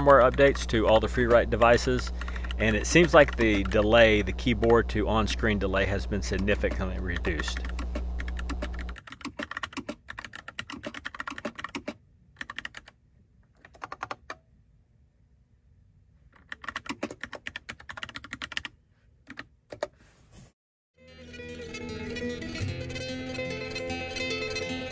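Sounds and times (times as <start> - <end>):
typewriter key clicks: 1.1 - 3.9.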